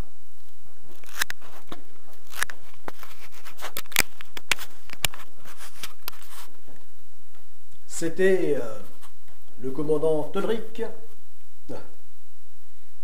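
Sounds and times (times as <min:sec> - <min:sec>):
camera handling clicks and rustles: 0:01.0 - 0:06.4.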